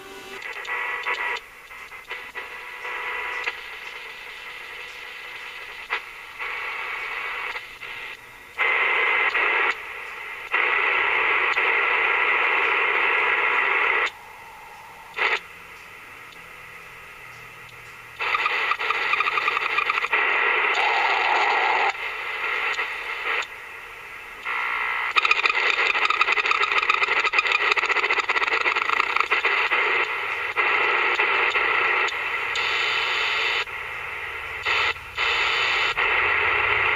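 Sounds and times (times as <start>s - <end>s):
radio whistle: 0.0s - 15.5s, 18.2s - 23.6s
radio static hiss: 0.0s - 36.9s.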